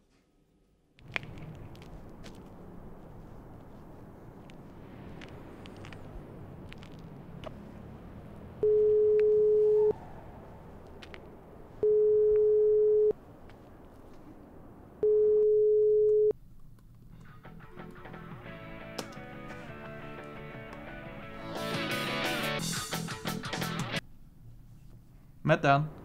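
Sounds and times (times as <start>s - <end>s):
telephone ringback tone: 8.6s - 9.9s, 11.8s - 13.1s, 15.0s - 16.3s.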